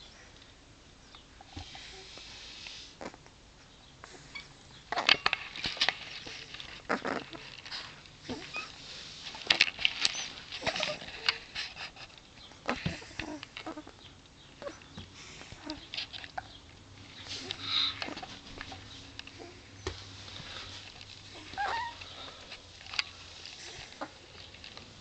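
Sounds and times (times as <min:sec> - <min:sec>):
puppies rustling on blanket: 0:05.4 - 0:13.9, 0:14.6 - 0:25.0
faint puppy squeaks: 0:08.3 - 0:08.8, 0:10.1 - 0:11.3, 0:14.6 - 0:15.0, 0:21.3 - 0:22.2.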